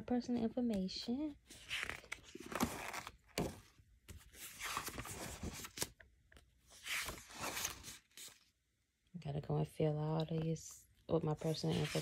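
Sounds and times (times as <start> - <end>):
paper pages rustling: 1.5 - 6.0, 6.6 - 8.5, 11.4 - 12.0.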